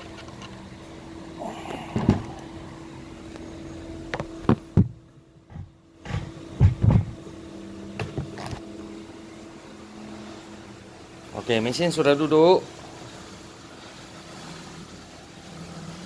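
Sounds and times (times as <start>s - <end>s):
steady low hum: 0.0s - 16.0s
heavy machine knocking onto table: 4.4s - 7.2s.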